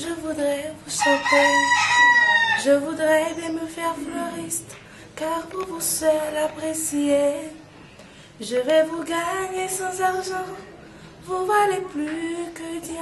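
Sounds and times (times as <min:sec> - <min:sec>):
woman singing unaccompanied: 0:00.0 - 0:07.7, 0:08.4 - 0:13.0
rooster crowing: 0:01.0 - 0:02.9.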